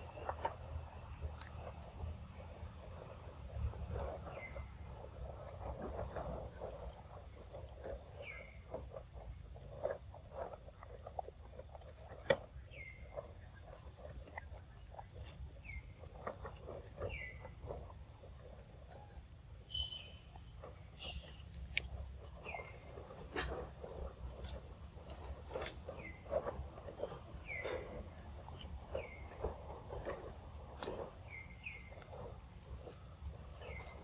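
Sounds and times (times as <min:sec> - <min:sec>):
faint high whine: 0:18.6 - 0:23.2.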